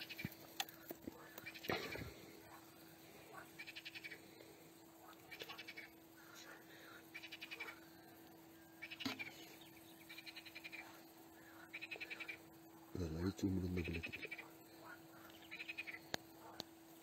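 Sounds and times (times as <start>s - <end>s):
frog trilling: 0.0s - 0.4s, 1.2s - 2.6s, 3.3s - 4.3s, 5.0s - 6.3s, 7.1s - 8.1s, 8.7s - 16.6s
faint steady hum: 0.0s - 17.0s.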